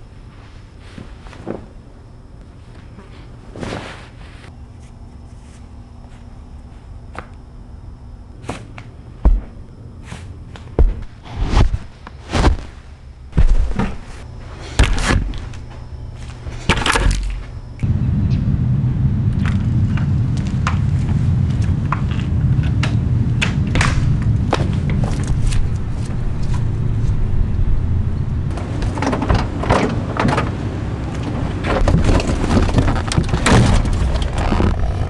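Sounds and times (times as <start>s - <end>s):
low outdoor rumble: 1.7s - 35.0s
objects knocking and scraping: 31.6s - 34.4s.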